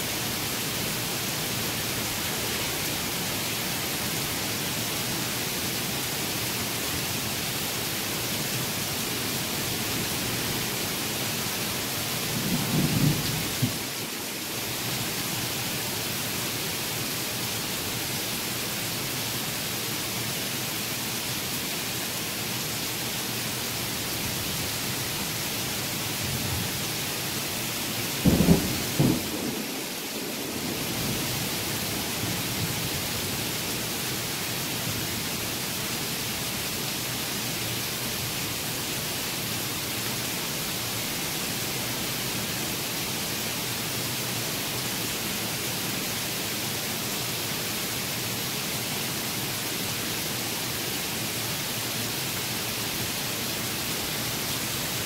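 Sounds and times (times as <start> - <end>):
heavy rain: 0.0 - 55.0
thunder rumbles: 12.4 - 13.8, 28.2 - 31.4.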